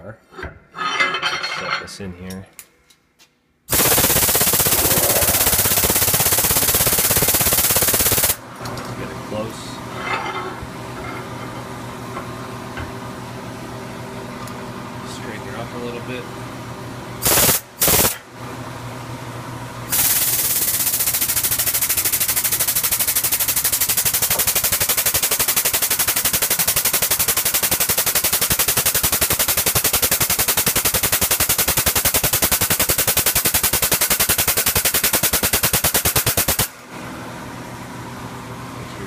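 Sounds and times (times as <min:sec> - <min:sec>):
air-driven pump chattering: 0:03.7 - 0:08.4, 0:17.2 - 0:18.2, 0:19.9 - 0:36.8.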